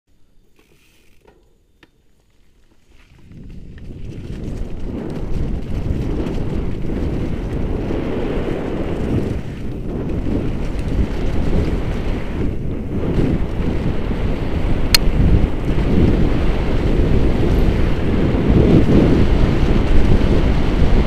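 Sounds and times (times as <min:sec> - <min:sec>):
wind rushing over microphone: 0:03.2 - 0:21.0.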